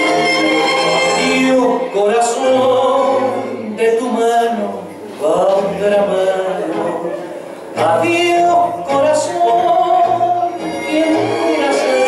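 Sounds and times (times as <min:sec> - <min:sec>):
tango song with singer: 0:00.0 - 0:12.0.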